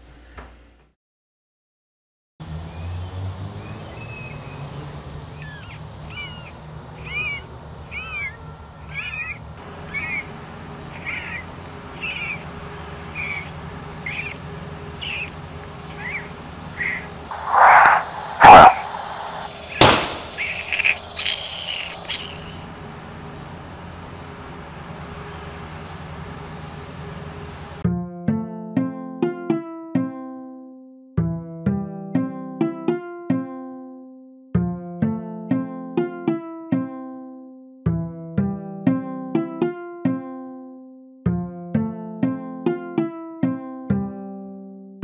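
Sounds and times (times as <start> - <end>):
chirping calls bending in pitch: 4.9 - 27.8
loud sudden noises: 16.8 - 22.8.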